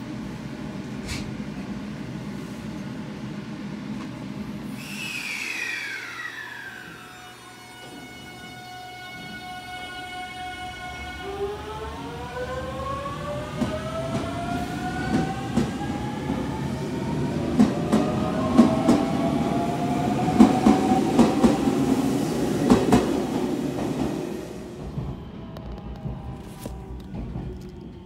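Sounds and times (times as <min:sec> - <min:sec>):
electric train motor whine: 0:04.8 - 0:16.4.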